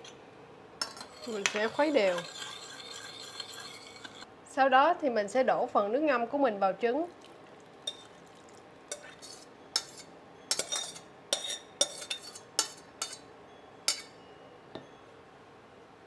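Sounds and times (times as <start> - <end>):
metal spoon scraping a metal pot: 0.8 - 4.3, 7.9 - 8.1, 8.9 - 13.2, 13.9 - 14.2.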